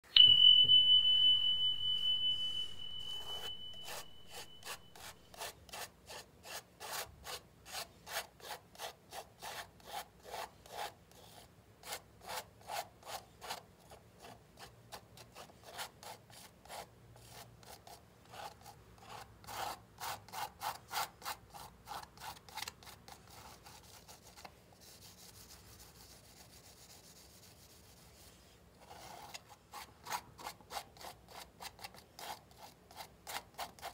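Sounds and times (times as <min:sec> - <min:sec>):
high ringing tone: 0:00.0 - 0:05.3
palette knife scraping canvas: 0:03.3 - 0:33.9.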